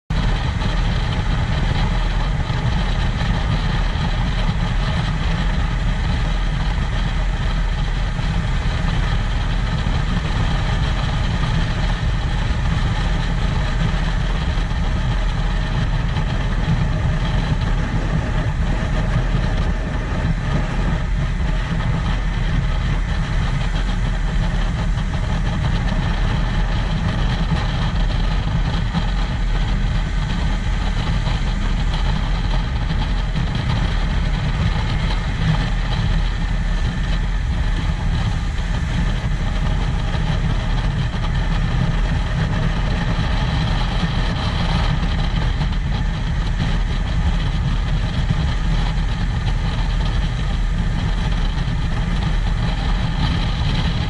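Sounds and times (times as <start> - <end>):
boat engine running: 0.1 - 54.0
rush of wind and water: 0.1 - 54.0.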